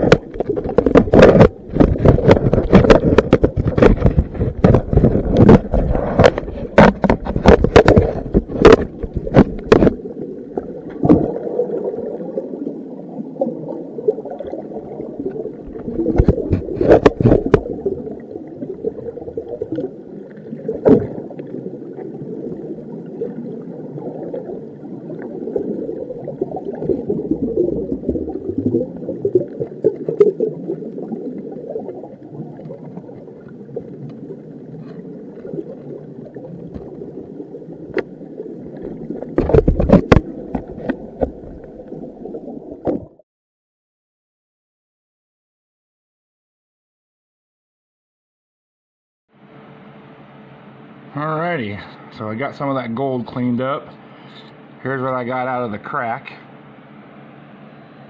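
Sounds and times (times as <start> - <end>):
muffled underwater rush: 0.0 - 43.2.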